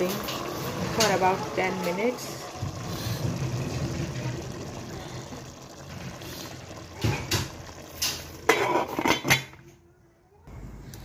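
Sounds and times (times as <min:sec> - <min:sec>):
rice bubbling in a pot: 0:00.0 - 0:09.8
steel lid clanking on a pot: 0:08.0 - 0:09.6.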